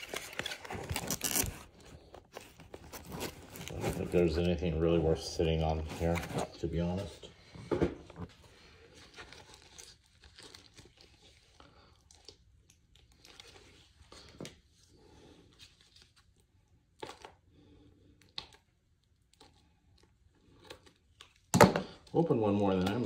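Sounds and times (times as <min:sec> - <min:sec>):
cards and foil wrapper crinkling: 0:00.0 - 0:04.9, 0:08.6 - 0:14.5.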